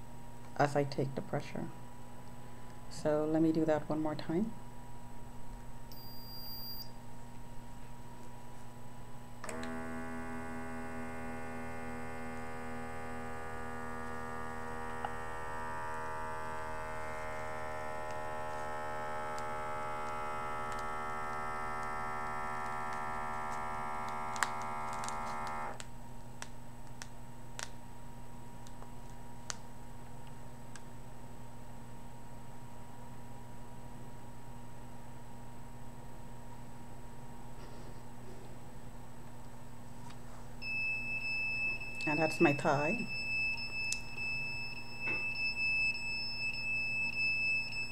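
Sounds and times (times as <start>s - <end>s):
small air pump humming: 9.4s - 25.8s.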